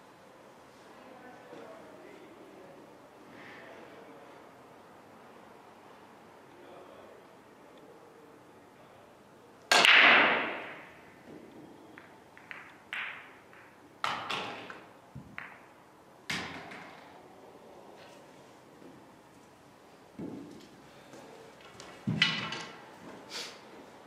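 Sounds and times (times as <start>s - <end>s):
pool balls clicking: 9.7s - 17.1s.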